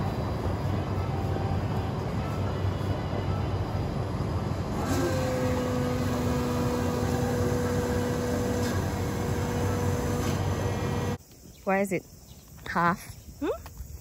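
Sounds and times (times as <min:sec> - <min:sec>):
steady whine: 0:00.0 - 0:11.2
blender motor humming: 0:04.7 - 0:11.2.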